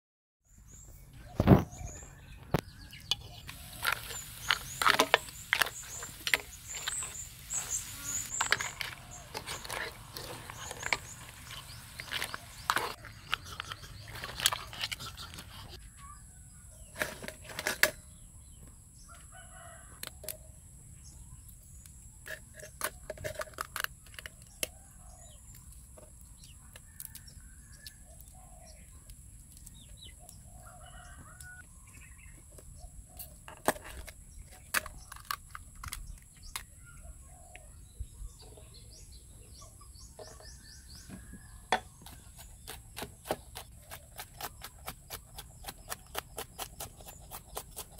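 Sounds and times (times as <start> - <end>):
chickens clucking: 1.2 - 15.8
high-pitched hiss: 3.5 - 8.7
rooster crowing: 19.1 - 20.0, 30.6 - 31.6
clicks and knocks from handling food: 33.2 - 36.7.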